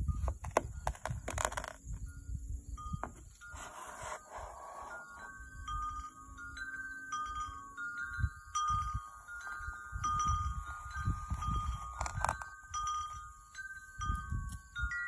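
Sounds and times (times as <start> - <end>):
wind chimes ringing: 4.5 - 15.0.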